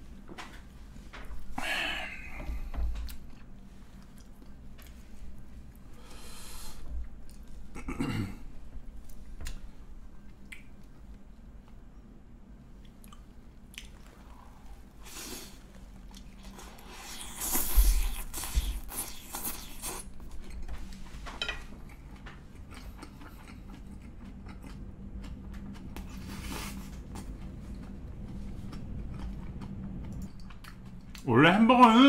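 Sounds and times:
person chewing crunchy food: 15.1s - 20.7s, 21.8s - 31.3s.

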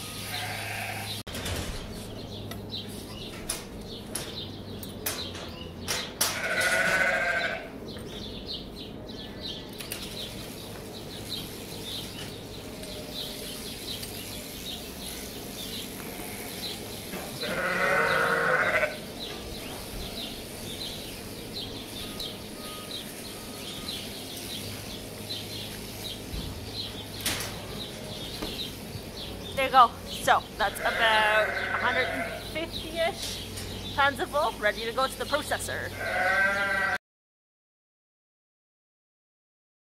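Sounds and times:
sheep bleating: 0.2s - 1.2s, 6.4s - 7.7s, 17.4s - 19.0s, 30.6s - 32.5s, 35.8s - 37.0s.

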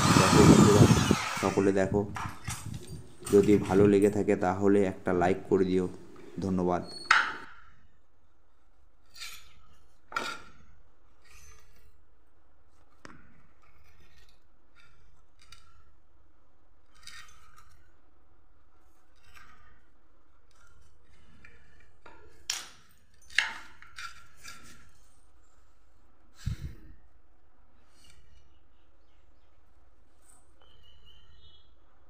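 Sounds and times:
hand tool scraping wood: 0.0s - 1.7s, 23.4s - 25.2s.

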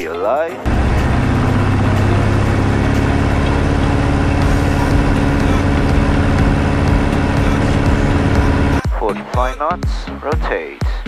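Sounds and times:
aircraft engine drone in cabin: 0.7s - 8.8s.

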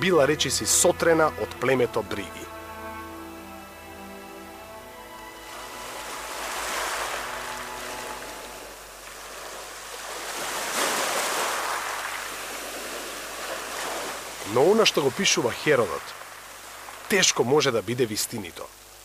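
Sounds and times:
background music: 0.0s - 9.0s
waves washing onto shore: 5.4s - 19.0s.

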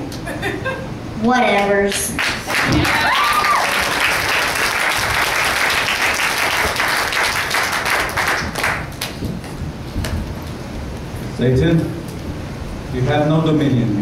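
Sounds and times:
audience applauding: 2.1s - 9.5s.

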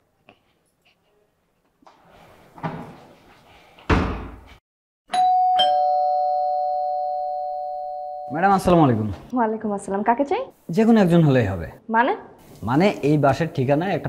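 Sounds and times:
two-tone doorbell chime: 5.1s - 8.6s.

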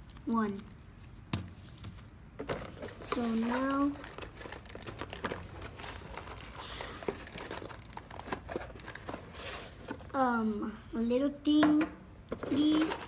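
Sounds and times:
cardboard box rustling: 1.6s - 10.1s
plastic bags crinkling: 2.7s - 9.4s.

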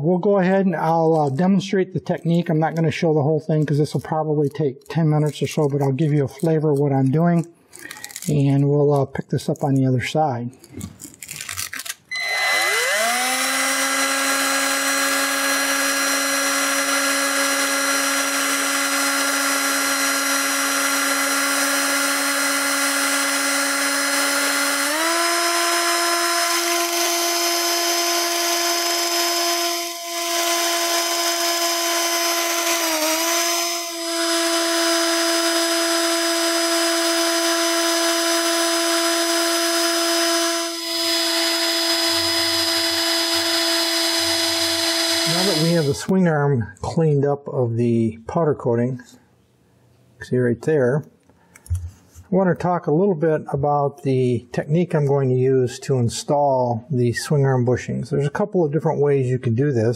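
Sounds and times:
drill sanding drum on metal: 12.1s - 46.1s.

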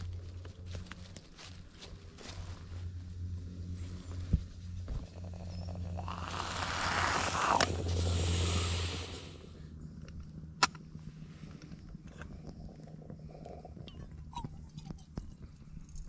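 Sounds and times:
moka pot hissing and sputtering: 5.0s - 9.6s.

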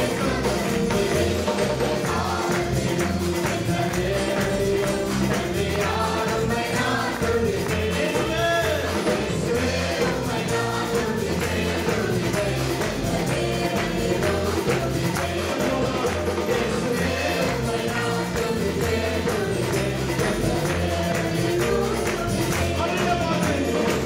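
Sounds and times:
electric bass: 0.0s - 24.0s
keyboards: 0.0s - 24.0s
worship band playing: 0.0s - 24.0s
man singing into a microphone: 7.0s - 10.0s.

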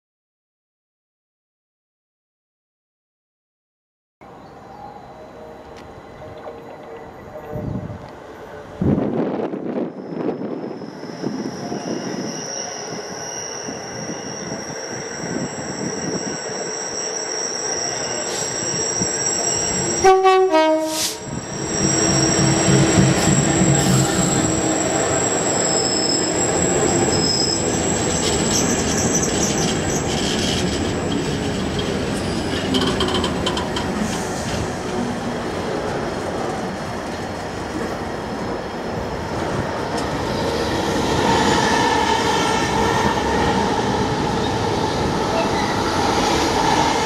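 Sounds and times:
high ringing from rails: 9.9s - 20.2s, 21.2s - 34.1s
high wheel squeal: 9.9s - 35.8s, 39.4s - 47.0s
two-note train horn: 19.9s - 25.2s
locomotive engine passing: 21.2s - 47.0s.

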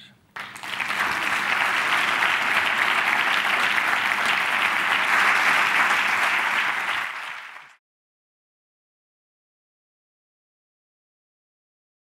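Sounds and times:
audience applauding: 0.4s - 7.8s.

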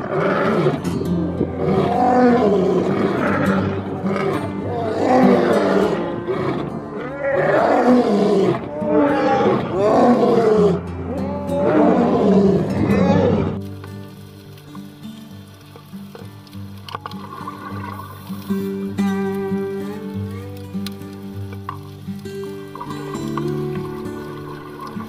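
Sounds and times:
lion roaring: 0.0s - 13.6s
background music: 0.0s - 25.0s.

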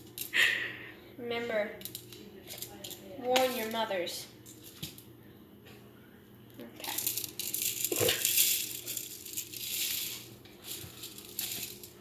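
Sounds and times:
sprinkles rattling in plastic shaker: 6.8s - 12.0s.

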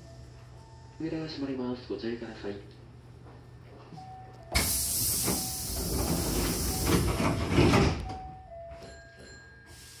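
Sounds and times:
train doors thumping shut: 4.5s - 9.0s
compressed air hiss: 4.6s - 7.0s, 9.7s - 10.0s.

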